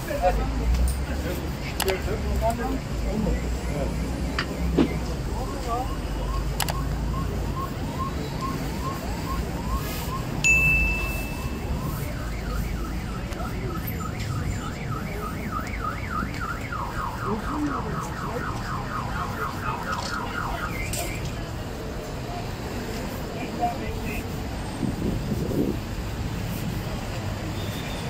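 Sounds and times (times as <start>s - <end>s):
low traffic rumble: 0.0s - 28.0s
car alarm cycling tones: 3.4s - 21.3s
short sharp beep: 10.1s - 12.8s.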